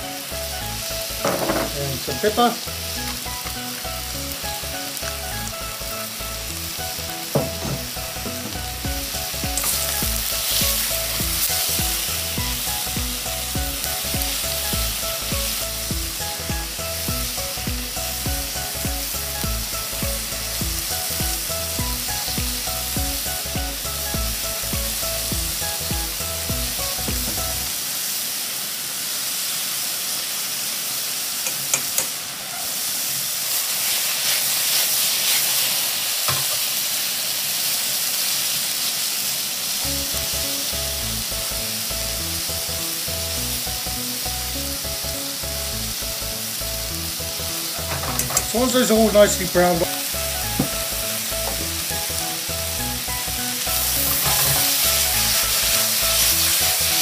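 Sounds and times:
soft background music: 0:00.0 - 0:27.7, 0:39.8 - 0:57.0
meat and onions sizzling: 0:00.0 - 0:57.0.

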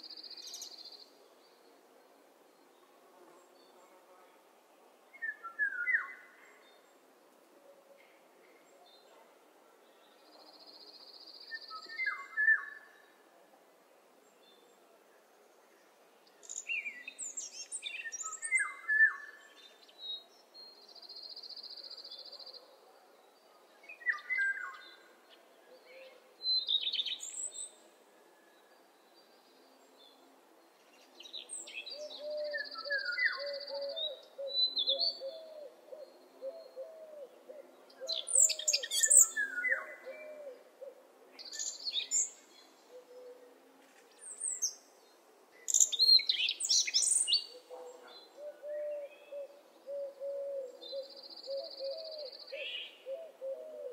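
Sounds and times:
songbirds chirping and trilling: 0:07.8 - 0:53.9.

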